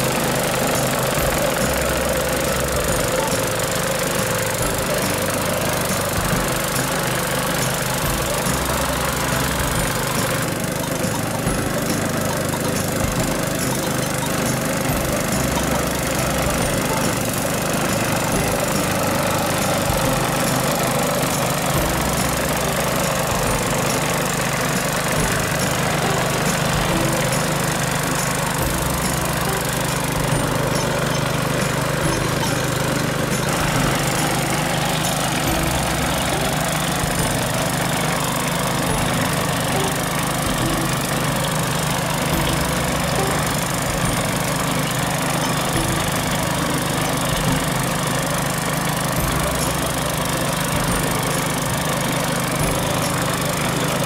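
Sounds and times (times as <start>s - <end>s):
grass cutter engine running: 0.0s - 54.0s.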